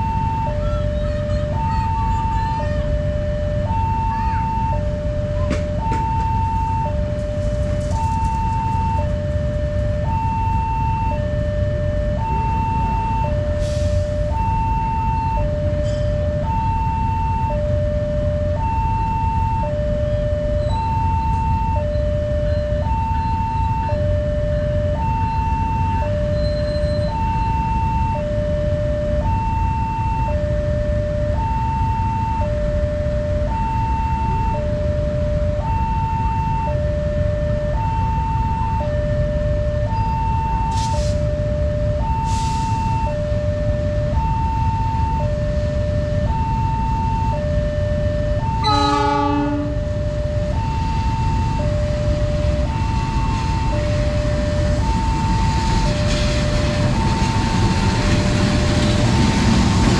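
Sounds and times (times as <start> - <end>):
two-tone crossing warning chime: 0.0 - 59.3
low rumble: 49.6 - 59.9.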